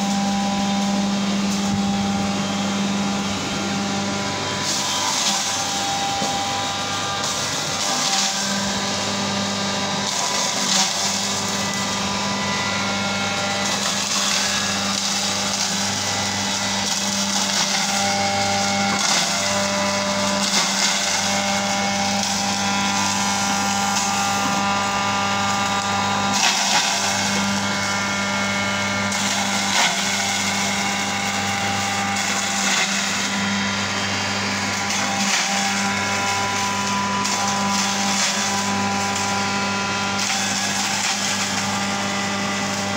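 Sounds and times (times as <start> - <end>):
electric motor hum: 0.0 - 42.9
onions being ground: 34.6 - 42.9.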